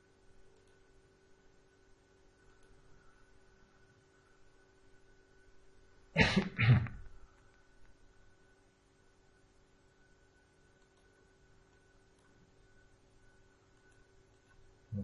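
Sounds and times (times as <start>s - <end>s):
faint electrical hum: 0.0s - 15.0s
person coughing: 6.2s - 7.0s.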